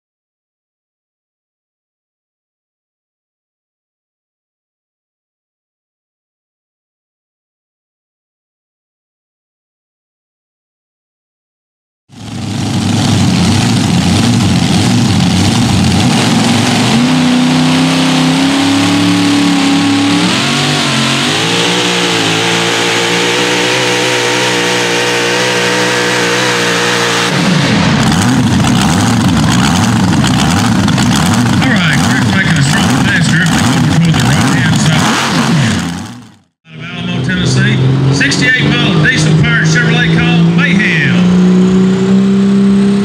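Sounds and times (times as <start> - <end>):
supercharged truck engine running hard: 12.1 - 43.0.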